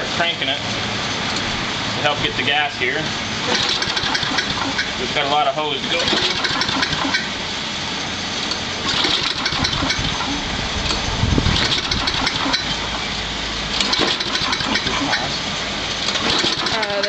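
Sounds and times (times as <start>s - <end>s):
small engine cranking without starting: 3.4s - 5.0s, 5.8s - 7.3s, 8.8s - 13.1s, 13.7s - 15.3s, 16.0s - 17.0s.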